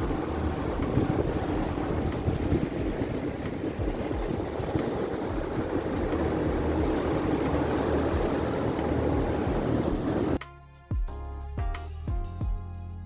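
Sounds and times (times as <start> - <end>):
cooling fans running: 0.0 - 10.4.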